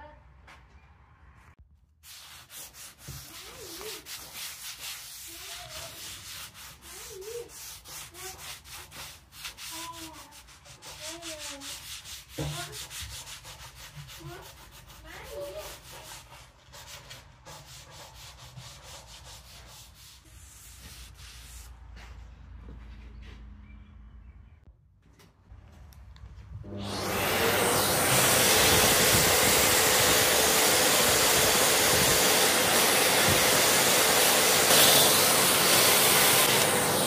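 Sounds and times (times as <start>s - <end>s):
damp cloth rubbing on wood: 2.0s - 22.0s.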